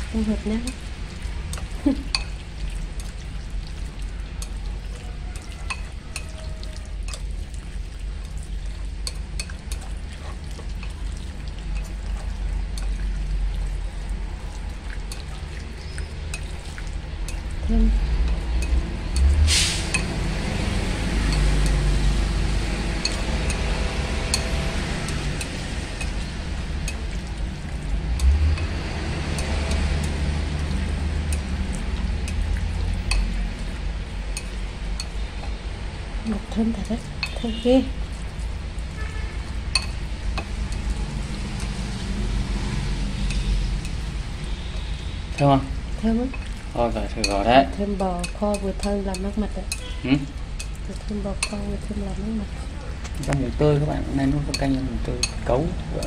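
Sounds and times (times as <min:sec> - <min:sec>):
chopsticks clicking against bowl: 0:00.6 - 0:17.6, 0:18.2 - 0:20.2, 0:21.2 - 0:21.9, 0:22.8 - 0:35.6, 0:36.3 - 0:37.4, 0:39.6 - 0:41.8, 0:43.2 - 0:44.1, 0:46.3 - 0:49.9, 0:50.6 - 0:51.6, 0:54.4 - 0:56.0.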